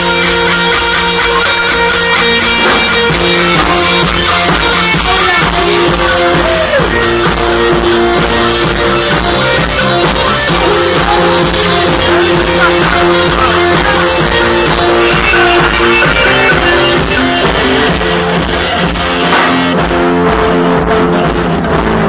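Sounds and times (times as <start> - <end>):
rock band playing: 0.0 - 22.0
man singing lead vocal: 3.6 - 7.3, 10.3 - 18.3.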